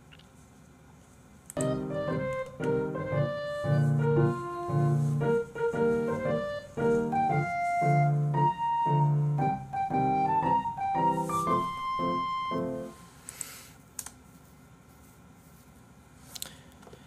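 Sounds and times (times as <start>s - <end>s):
light piano music: 1.6s - 13.2s.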